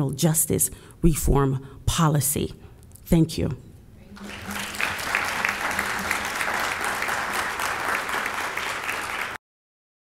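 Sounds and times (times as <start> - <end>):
audience applauding: 4.2 - 9.4.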